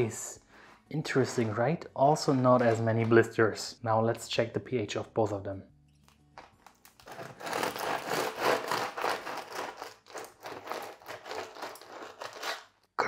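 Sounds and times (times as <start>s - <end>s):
knife sawing through bread crust: 7.1s - 12.7s.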